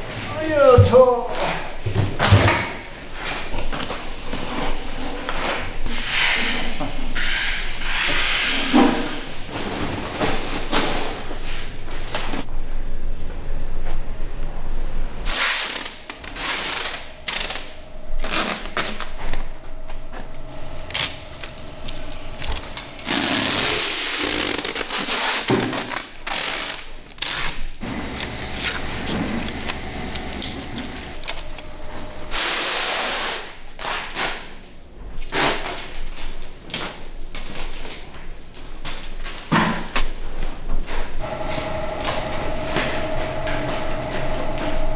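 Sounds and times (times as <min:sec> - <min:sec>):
faint steady hum: 0:15.9 - 0:24.2.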